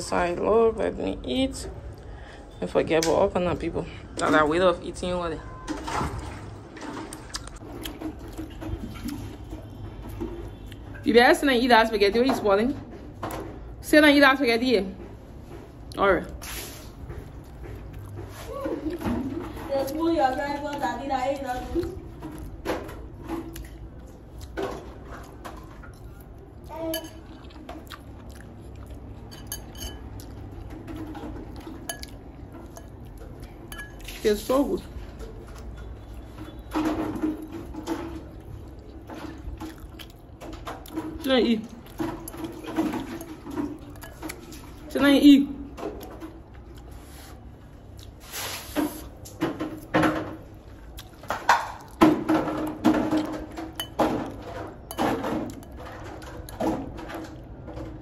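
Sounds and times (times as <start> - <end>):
fork clinking on plate: 26.9 - 27.3, 29.3 - 30.1.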